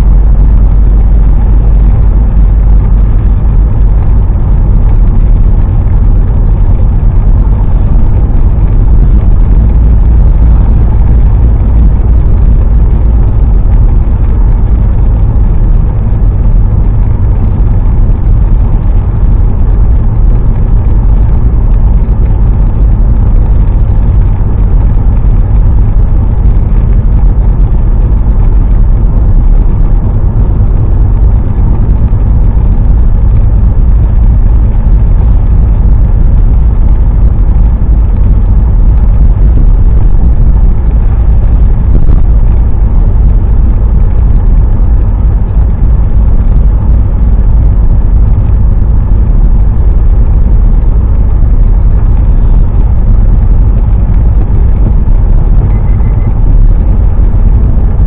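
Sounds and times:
car driving on wet road: 0.0s - 43.6s.

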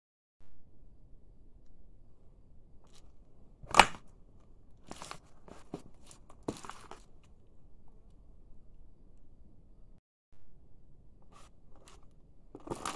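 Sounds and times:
shoe stomping on plastic doll: 4.9s - 7.0s
plastic crackling and creaking: 11.2s - 12.9s.

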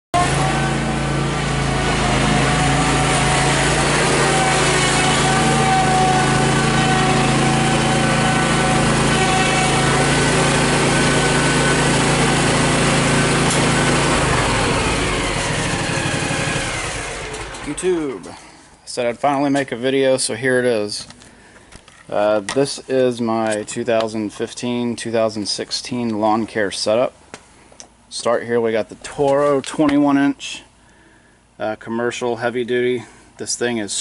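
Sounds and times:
mower engine running: 0.1s - 18.6s.

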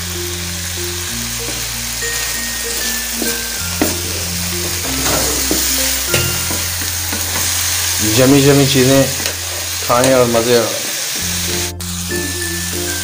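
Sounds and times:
background music with bass: 0.0s - 8.8s
vegetables sizzling in a frying pan: 0.0s - 13.0s.

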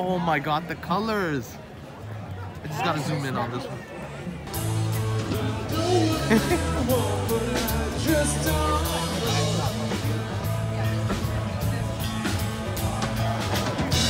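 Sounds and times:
drums: 4.2s - 14.0s
bass guitar: 4.3s - 14.0s
person singing: 5.2s - 10.4s.

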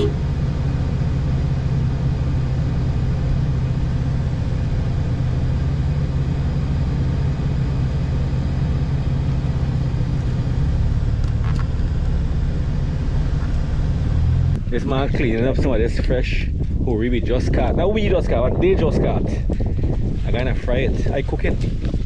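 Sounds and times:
vehicle engine rumbling: 0.0s - 22.0s.

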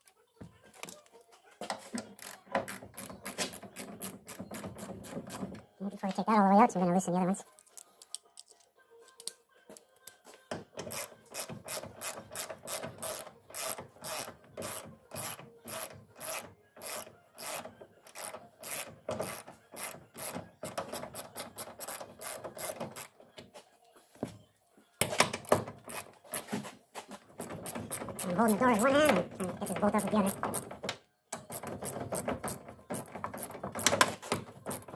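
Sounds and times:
ratchet wrench clicking: 10.9s - 23.1s.

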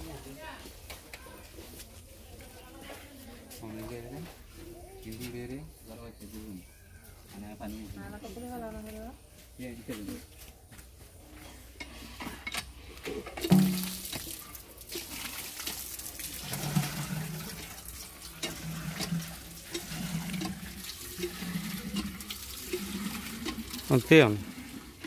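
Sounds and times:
water gushing into a metal pot: 13.2s - 25.0s.

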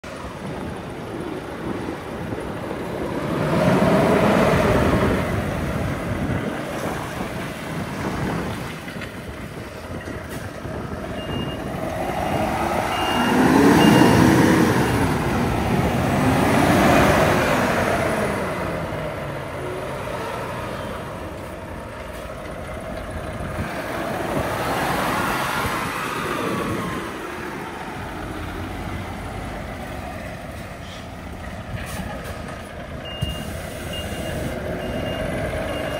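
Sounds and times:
truck diesel engine driving: 0.0s - 35.9s
high beeps: 11.2s - 11.7s, 12.9s - 14.3s, 33.0s - 35.9s.

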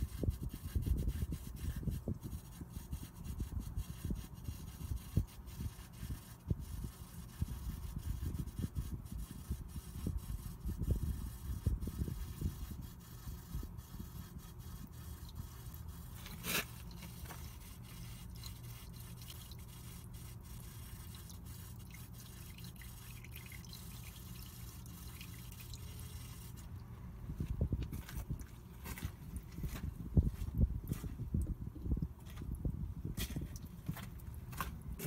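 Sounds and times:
oil trickling into a pan: 20.8s - 26.5s.

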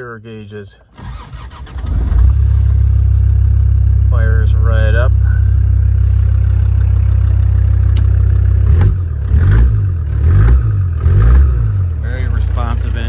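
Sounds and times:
diesel engine idling and revving: 0.9s - 13.0s.

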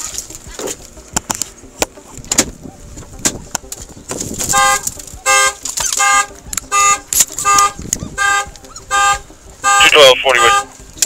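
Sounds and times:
car horn alarm blasts: 4.5s - 10.8s.

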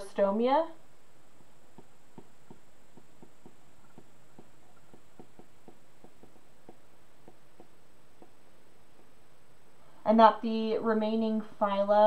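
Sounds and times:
stylus tapping on tablet screen: 1.7s - 9.2s.

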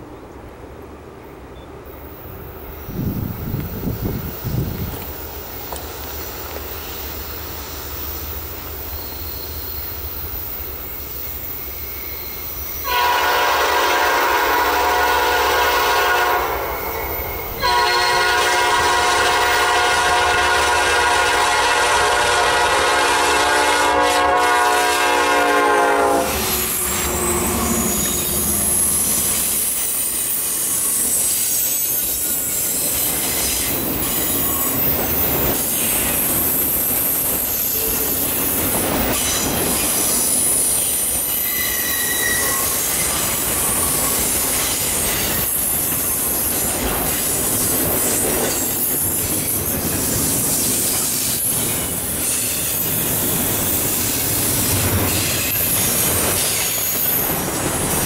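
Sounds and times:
diesel locomotives passing: 0.0s - 58.0s
steel wheels rumbling: 2.3s - 58.0s
wheel squeals: 2.7s - 12.9s, 26.4s - 45.8s, 47.2s - 57.4s
wheels clacking over rail joints: 3.4s - 12.8s
train horn: 12.8s - 28.9s, 41.4s - 43.2s.

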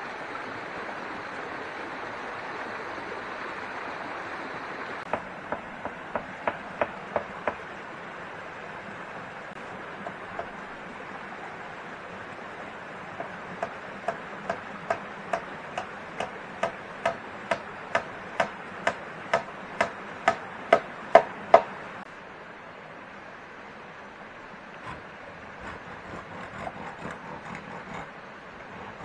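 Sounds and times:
steady hiss: 0.0s - 29.0s
tool knocking on wood: 5.1s - 7.6s, 13.2s - 21.7s.

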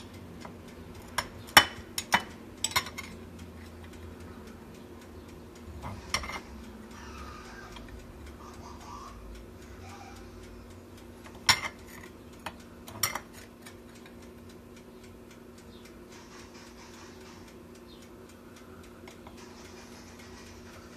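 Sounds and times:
faint steady ticking: 0.0s - 20.9s
knife clinking on bone and plate: 1.1s - 3.2s, 6.1s - 6.5s, 11.4s - 13.6s.

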